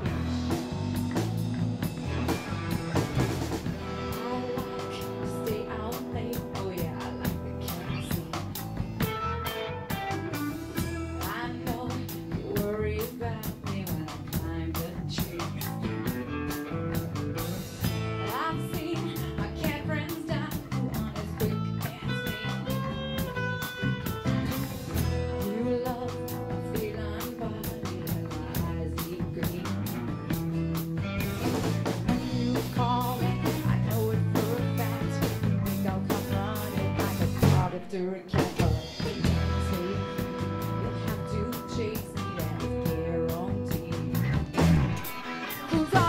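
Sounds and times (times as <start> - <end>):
electric bass: 0.0 - 46.0
electric guitar picking: 0.0 - 46.0
live rock band playing: 0.0 - 46.0
steady drum beat: 0.0 - 46.0
woman singing: 3.8 - 9.1, 10.4 - 16.2, 18.2 - 23.4, 24.9 - 30.6, 32.0 - 46.0
strummed acoustic guitar: 39.1 - 46.0.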